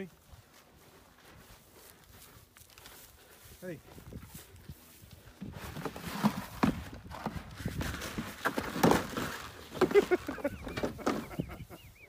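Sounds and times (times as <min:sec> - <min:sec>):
hooves knocking on feed trough: 0:04.0 - 0:11.7.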